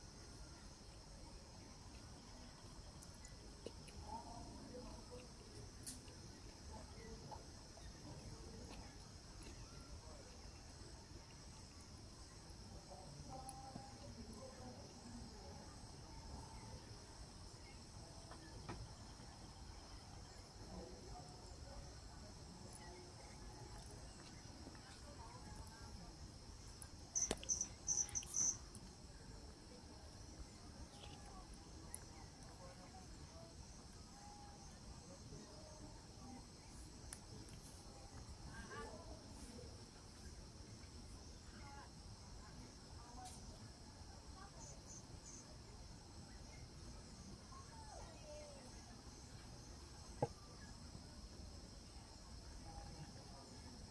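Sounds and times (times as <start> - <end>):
high-pitched insect chorus: 0.1 - 53.9
high-pitched insect chirps: 26.6 - 28.8.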